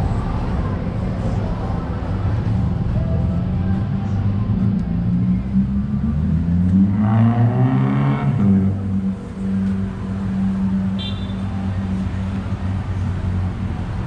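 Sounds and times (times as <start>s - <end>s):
vehicle engine accelerating: 3.7s - 10.8s.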